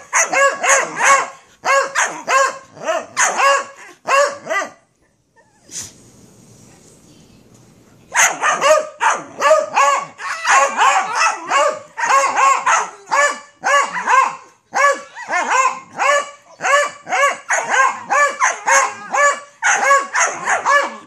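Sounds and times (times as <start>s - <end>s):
dog barking: 0.0s - 4.8s, 8.1s - 21.0s.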